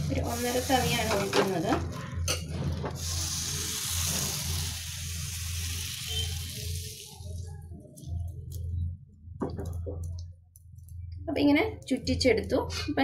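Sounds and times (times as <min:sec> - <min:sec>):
batter sizzling in a pan: 0:00.0 - 0:01.8, 0:02.8 - 0:07.4
low steady hum: 0:06.1 - 0:13.0.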